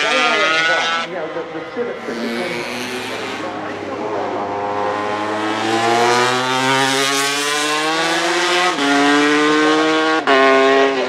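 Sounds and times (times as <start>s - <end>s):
racing motorcycle engine accelerating: 1.9s - 11.0s.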